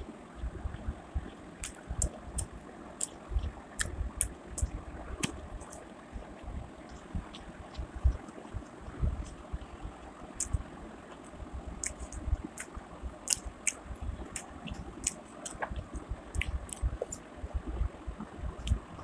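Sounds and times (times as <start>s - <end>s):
person chewing food: 1.6s - 5.9s, 6.8s - 9.5s, 10.4s - 17.2s.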